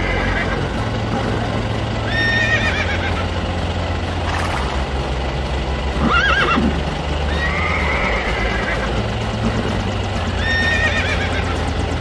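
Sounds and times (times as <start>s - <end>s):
horse whinnying: 0.0s - 0.6s, 2.1s - 3.2s, 6.0s - 6.7s, 7.3s - 8.9s, 10.4s - 11.5s.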